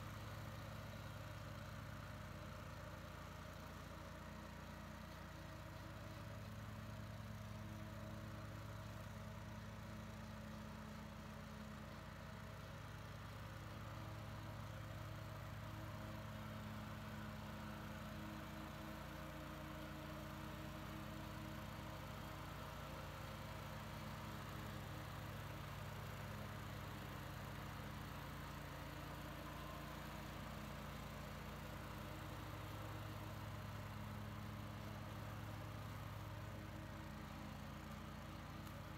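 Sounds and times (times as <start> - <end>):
riding mower engine humming: 14.3 - 38.9.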